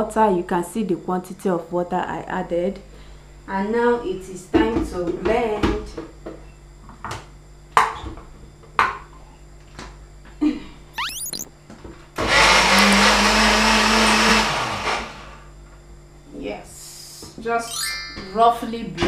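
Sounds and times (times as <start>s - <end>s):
electric blender running: 12.3s - 15.4s.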